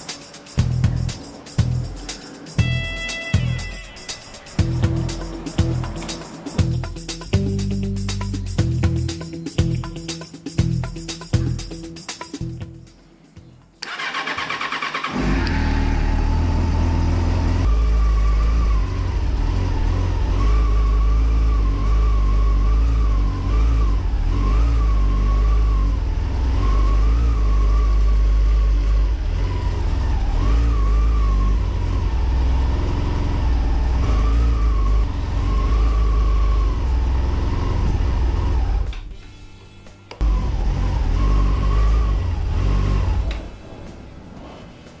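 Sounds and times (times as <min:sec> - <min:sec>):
electric starter cranking: 0:13.8 - 0:16.2.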